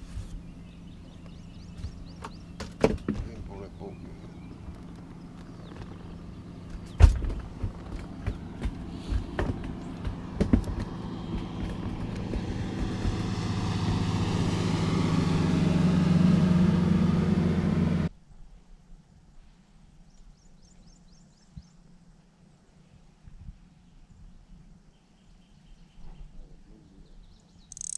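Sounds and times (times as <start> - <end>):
engine running: 0.0 - 18.1
birds chirping: 0.2 - 16.8, 24.9 - 27.9
sharp knocks: 6.8 - 14.3.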